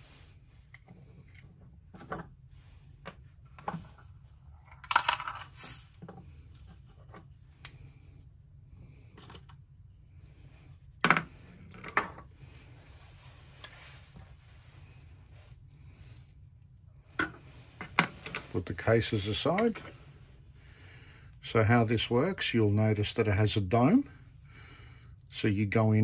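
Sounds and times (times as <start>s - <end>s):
small metal and plastic parts clinking: 4.6s - 5.8s.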